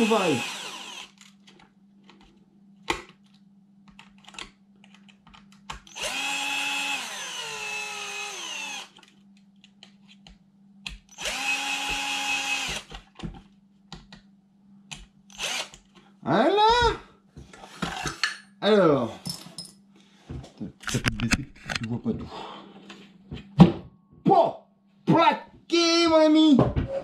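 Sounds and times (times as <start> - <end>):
cordless drill motor running: 0.0 - 1.3, 5.9 - 9.0, 11.1 - 12.9, 15.3 - 15.8.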